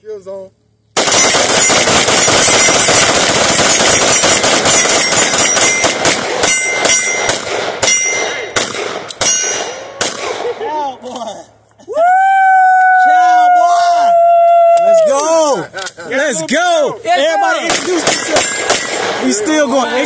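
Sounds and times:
handgun shots: 1.0s - 10.5s, 17.7s - 19.2s.

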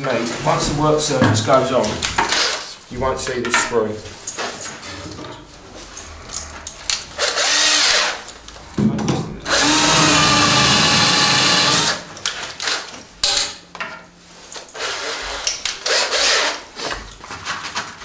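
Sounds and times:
cordless drill drilling: 7.2s - 8.2s, 9.5s - 12.8s, 14.8s - 16.6s.

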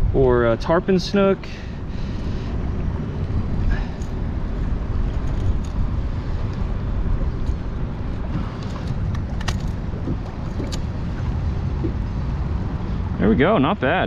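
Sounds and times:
wind rumble on microphone: 0.0s - 14.0s
water slapping against kayak: 5.0s - 12.6s.

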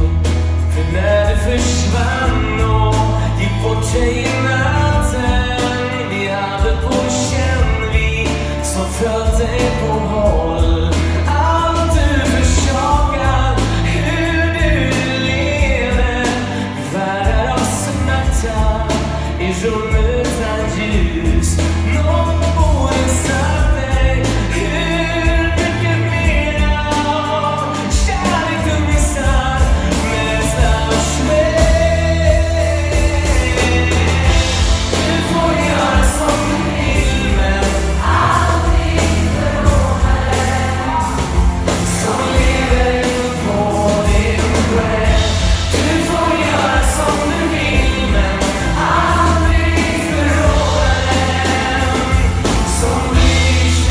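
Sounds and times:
choir singing pop song: 0.0s - 53.9s
male lead singer: 0.0s - 53.9s
piano-led band: 0.0s - 53.9s
steady bass beat: 19.9s - 53.9s.

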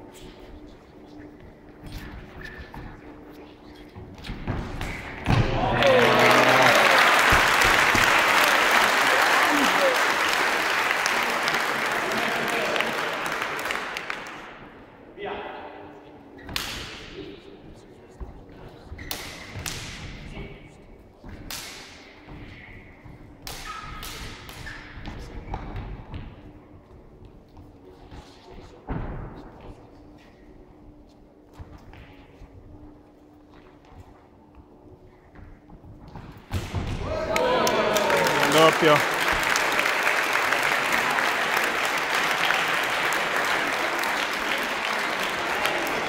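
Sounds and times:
spectators applauding: 5.6s - 14.5s, 37.2s - 46.0s.

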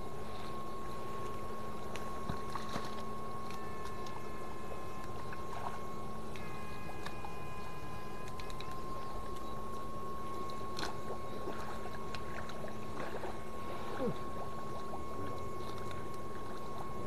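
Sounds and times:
steady high electrical whine: 0.0s - 17.0s
water splashing: 10.4s - 17.0s.

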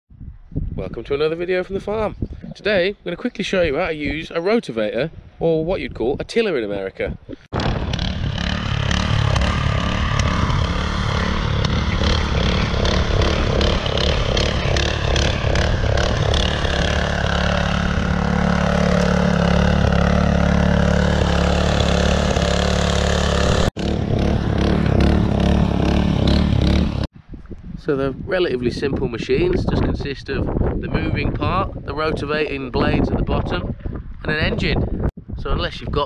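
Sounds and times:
tines churning soil: 7.5s - 27.1s
rotavator engine running: 7.6s - 27.1s.

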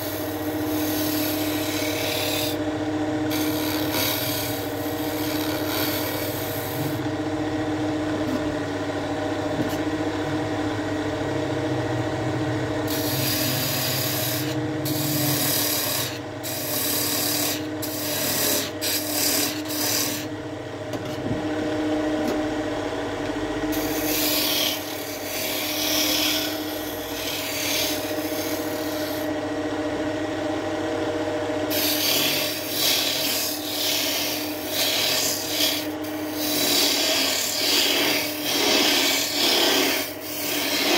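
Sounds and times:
turning tool scraping wood: 0.0s - 2.6s, 3.3s - 7.1s, 12.9s - 20.3s, 23.7s - 29.3s, 31.7s - 40.9s
lathe motor hum: 0.0s - 40.9s.

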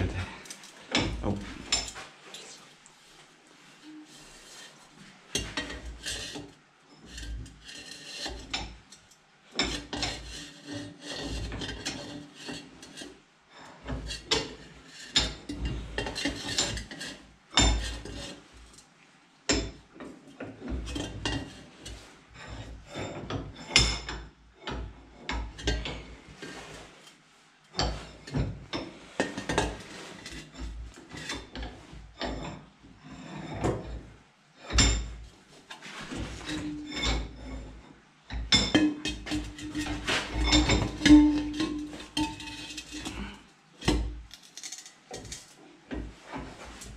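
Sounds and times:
scraping against metal pipe: 3.6s - 18.5s, 24.7s - 46.9s.

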